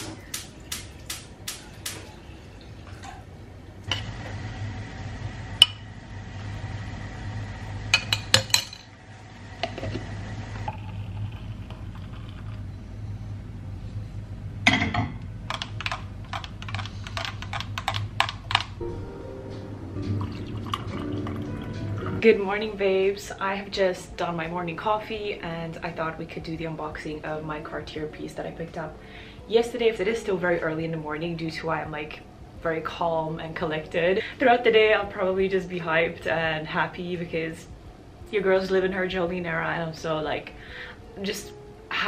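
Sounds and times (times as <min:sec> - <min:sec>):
steady hiss: 0:00.0 - 0:02.4.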